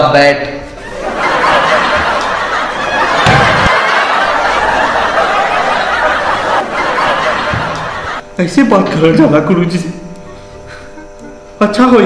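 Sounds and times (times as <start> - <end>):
crowd laughing: 0.8 - 8.2.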